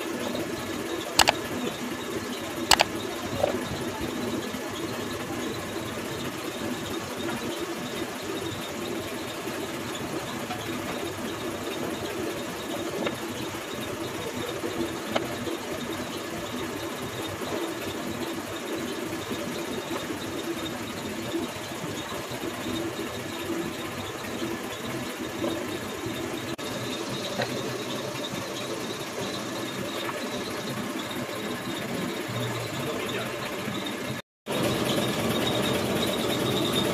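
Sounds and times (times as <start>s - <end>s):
workshop machinery humming: 0.0s - 36.9s
faint click: 1.2s - 1.4s.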